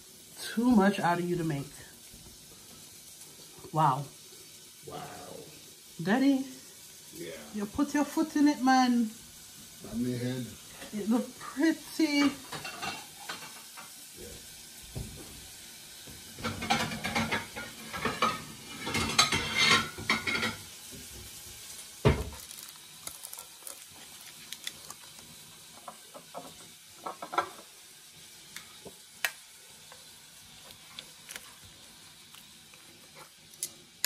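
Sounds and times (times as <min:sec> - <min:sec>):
soft sizzle from hot pan: 0:00.0 - 0:34.0
metal tongs scraping a pan: 0:16.4 - 0:20.6.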